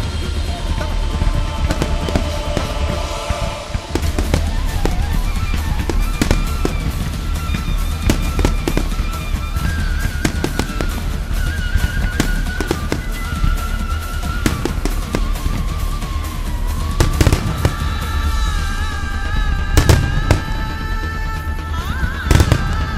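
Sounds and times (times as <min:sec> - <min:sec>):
fireworks bursting: 0:00.0 - 0:22.9
music playing: 0:00.0 - 0:22.9.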